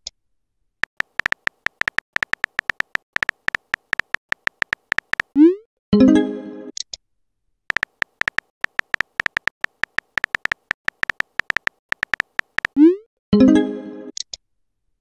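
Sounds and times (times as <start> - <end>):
clicky keyboard tap beeps: 0.8 - 5.3, 7.7 - 12.8.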